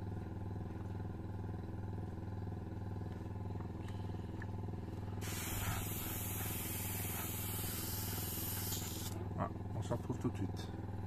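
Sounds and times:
motor humming: 2.9s - 9.7s
airbrush hissing: 5.2s - 9.2s.

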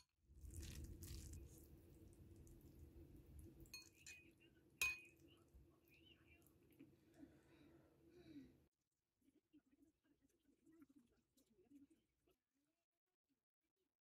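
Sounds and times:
noodles stirring in a bowl: 0.4s - 5.2s
metal clinking on ceramic bowl: 3.7s - 5.2s.

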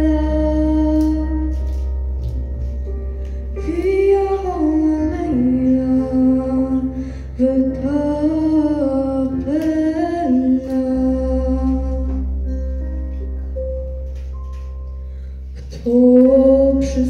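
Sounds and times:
woman singing into a microphone: 0.0s - 1.6s, 3.6s - 12.4s, 15.6s - 17.0s
instrumental accompaniment: 0.0s - 17.0s.

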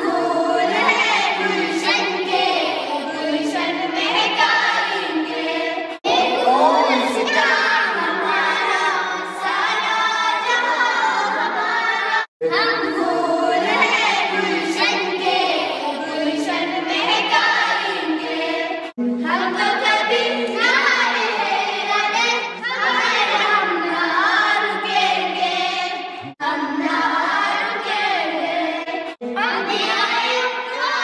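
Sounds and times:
children singing together: 0.0s - 31.0s.

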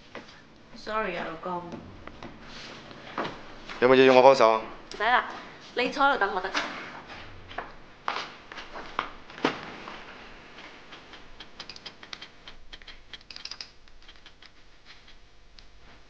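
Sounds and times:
typewriter keys clacking: 11.0s - 15.1s.

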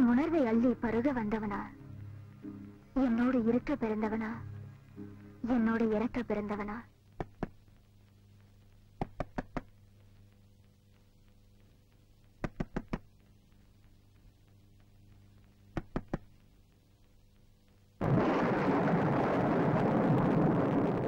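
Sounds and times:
knocking on a door: 9.0s - 9.7s, 12.4s - 13.0s, 15.8s - 16.3s.

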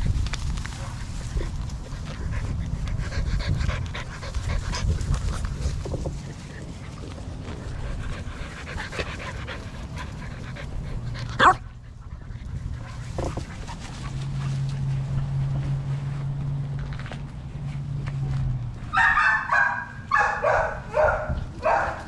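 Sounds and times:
puppy panting: 1.4s - 15.4s
puppy barking: 11.4s - 11.6s, 18.9s - 22.0s
puppy yelping: 18.9s - 22.0s.

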